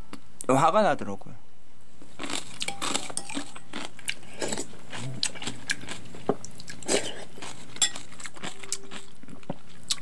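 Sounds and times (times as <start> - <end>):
food crunching: 2.2 - 10.0.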